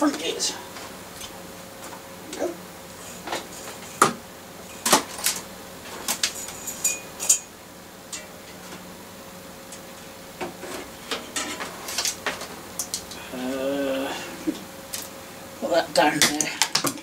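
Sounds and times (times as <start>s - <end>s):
short ringing rattle: 6.4s - 7.5s.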